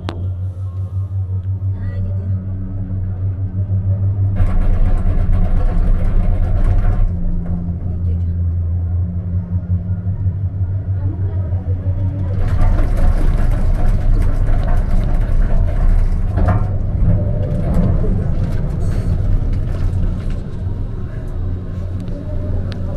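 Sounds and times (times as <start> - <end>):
cable car cabin rumbling: 0.0 - 22.9
clicks and rattles: 4.3 - 7.8, 12.1 - 21.4.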